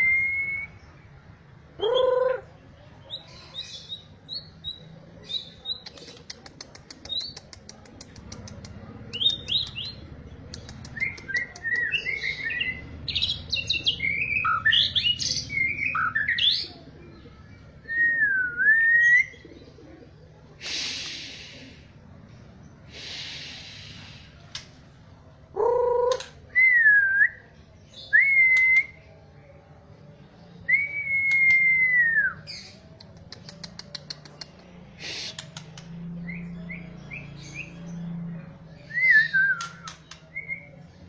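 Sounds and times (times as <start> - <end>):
bird singing whistled notes: 38.8 - 40.7.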